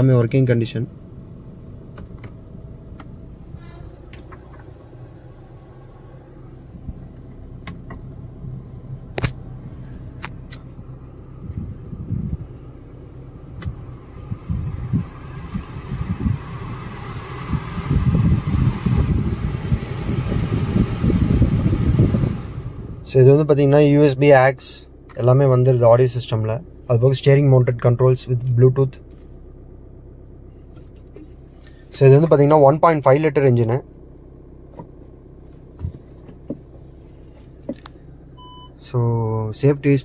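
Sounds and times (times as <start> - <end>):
car engine idling: 0.0 - 40.0
rushing blow with low gusts: 8.2 - 23.8.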